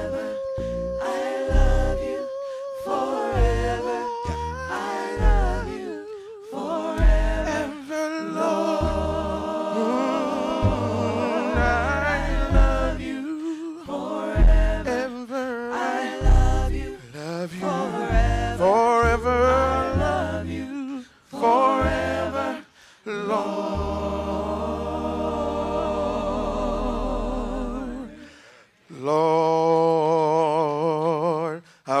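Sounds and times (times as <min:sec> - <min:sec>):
low bass notes: 0:00.0 - 0:02.1, 0:03.4 - 0:05.8, 0:07.0 - 0:07.6, 0:08.8 - 0:09.5, 0:10.5 - 0:13.1, 0:14.4 - 0:15.0, 0:16.2 - 0:17.0, 0:18.1 - 0:20.6
choir singing gospel song: 0:00.0 - 0:32.0.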